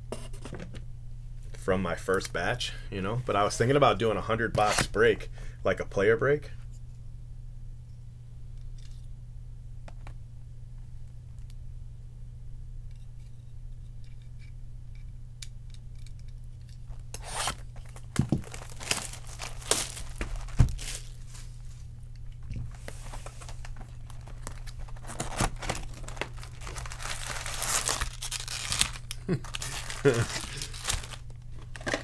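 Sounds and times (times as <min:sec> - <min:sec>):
steady low hum: 0:00.0 - 0:32.0
plastic wrapping tearing and crinkling: 0:16.9 - 0:21.5, 0:22.8 - 0:32.0.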